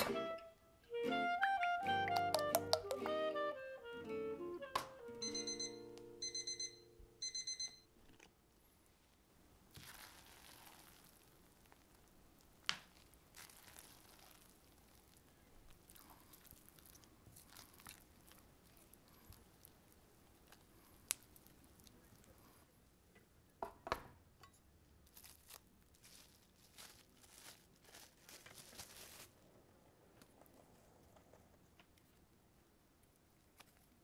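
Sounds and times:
background music chord: 0.0 - 7.2
digital kitchen timer beeping: 5.2 - 7.9
batter stirred with spatula: 9.7 - 22.5.

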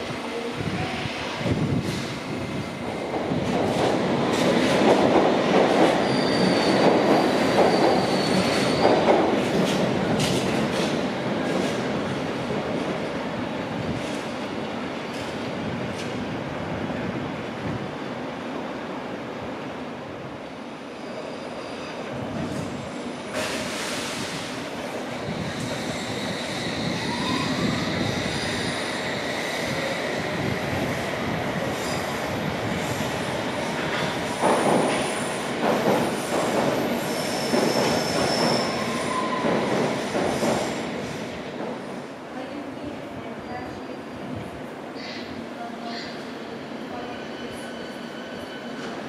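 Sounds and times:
train wheels squealing: 5.7 - 9.3, 20.9 - 22.2, 25.4 - 30.4, 33.8 - 41.3, 45.0 - 49.0.

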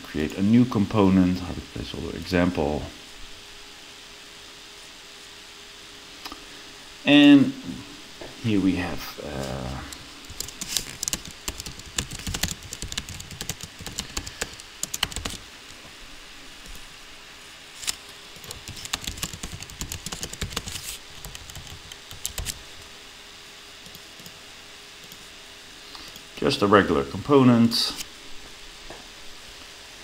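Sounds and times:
typing on computer keyboard: 10.3 - 15.4, 18.4 - 22.6.

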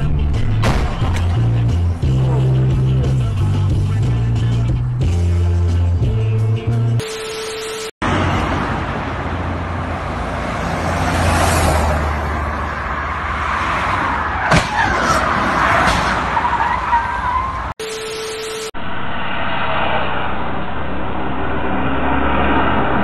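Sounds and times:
highway traffic: 0.0 - 23.0
steady beep: 7.0 - 7.9, 17.8 - 18.8
car crash impact: 14.4 - 16.5
tv static: 17.8 - 18.8.

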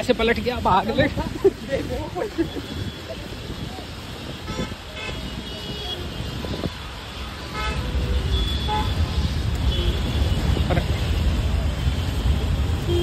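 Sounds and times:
traffic on wet road: 0.0 - 13.0.

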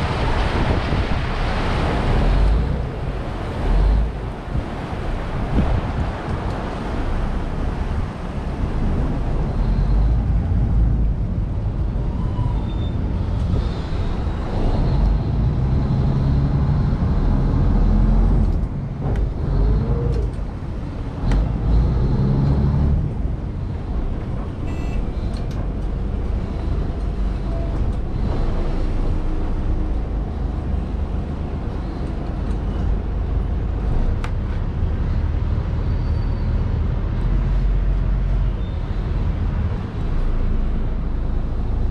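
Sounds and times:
boat diesel engine rumbling: 0.0 - 41.9
water noise: 0.0 - 41.9
wind noise: 0.0 - 41.9.

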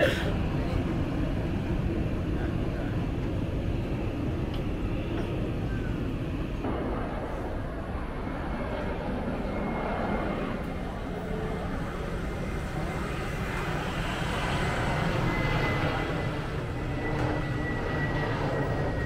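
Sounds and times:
airliner engine rumble and whine: 0.0 - 19.0.

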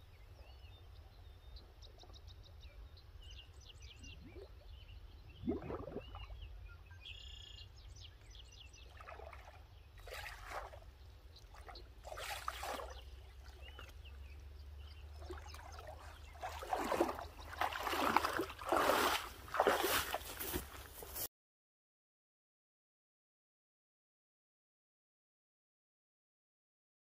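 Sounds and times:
splashing steps in water: 8.9 - 14.0, 15.2 - 21.2.

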